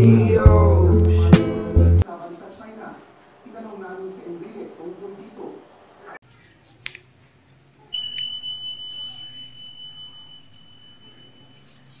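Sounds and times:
high notification ding: 0:08.0 - 0:12.0.

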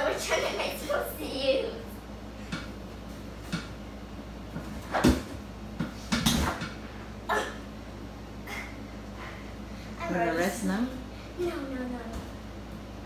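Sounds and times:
gymnastics bar knocks and thuds: 0:04.6 - 0:06.8.

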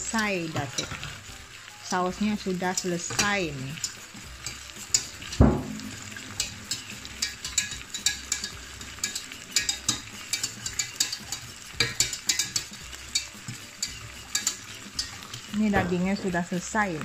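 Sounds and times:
steak sizzling in a frying pan: 0:00.0 - 0:17.0
whisk clicking against saucepan: 0:02.4 - 0:15.8
dull knock: 0:05.4 - 0:05.9.

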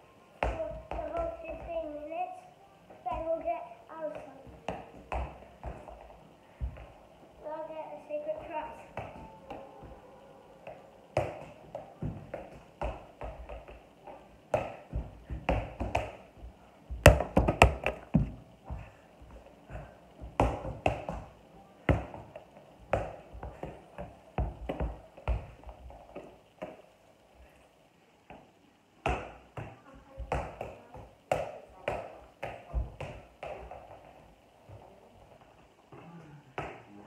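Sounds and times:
ball taps on bare feet: 0:04.1 - 0:07.0, 0:10.6 - 0:19.3, 0:20.2 - 0:26.8, 0:29.0 - 0:34.1
ball dropping on wooden floor: 0:10.7 - 0:18.4.

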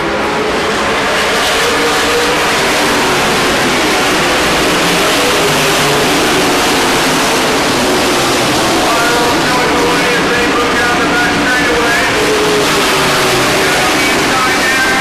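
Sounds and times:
race truck engines roaring: 0:00.0 - 0:15.0.

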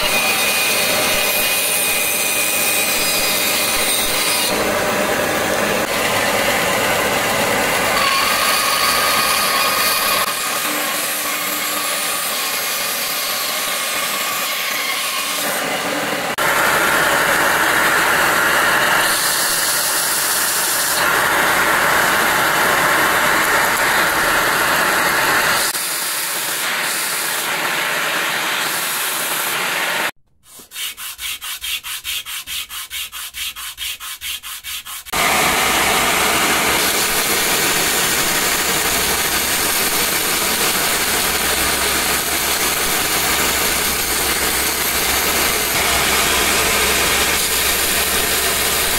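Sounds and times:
belt grinder running: 0:00.0 - 0:14.2, 0:16.3 - 0:30.0, 0:35.0 - 0:48.9
bandsaw cutting wood: 0:00.0 - 0:48.9
wood rubbed on sandpaper: 0:30.4 - 0:35.2.

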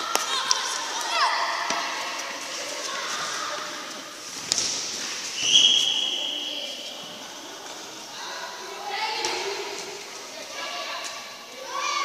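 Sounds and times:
referee's whistle blast: 0:05.4 - 0:06.5.

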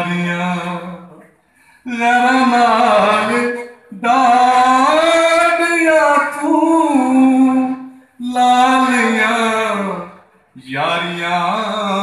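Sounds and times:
man singing unaccompanied: 0:00.0 - 0:12.0
breath: 0:01.4 - 0:01.9.

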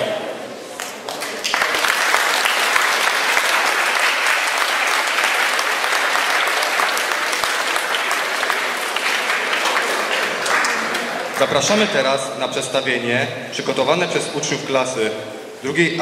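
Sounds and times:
audience applause: 0:00.8 - 0:11.9.

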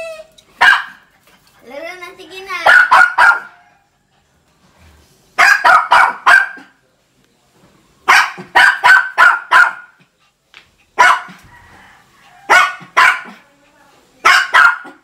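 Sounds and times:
small dog barking: 0:00.6 - 0:01.0, 0:02.6 - 0:03.8, 0:05.4 - 0:06.8, 0:08.0 - 0:10.0, 0:11.0 - 0:11.5, 0:12.3 - 0:13.4, 0:14.2 - 0:15.0.

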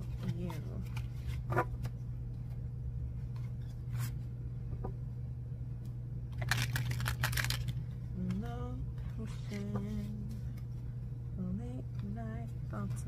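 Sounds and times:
low hum: 0:00.0 - 0:13.0
cards being shuffled: 0:06.3 - 0:07.8.

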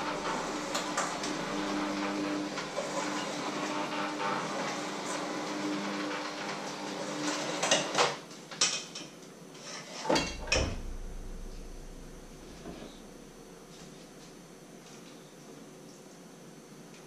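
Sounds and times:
electric hand mixer running: 0:00.0 - 0:06.5.

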